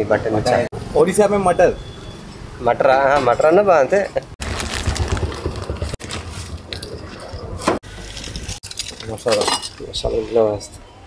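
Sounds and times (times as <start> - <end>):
steel bowls and utensils clinking: 6.7 - 10.8.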